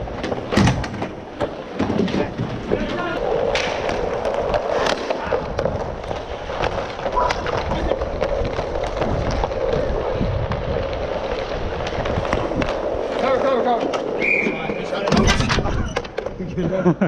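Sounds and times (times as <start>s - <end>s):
skate wheels rolling on plastic tiles: 0.0s - 17.0s
hockey stick clicking on puck: 3.4s - 9.9s, 10.7s - 14.1s.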